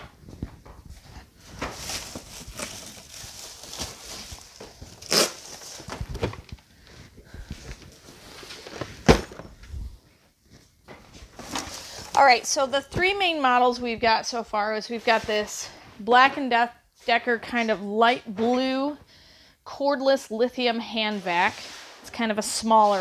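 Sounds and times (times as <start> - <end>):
rustling: 0.2 - 12.4
cardboard boxes handled: 0.3 - 9.8
box thudding on table: 9.0 - 9.5.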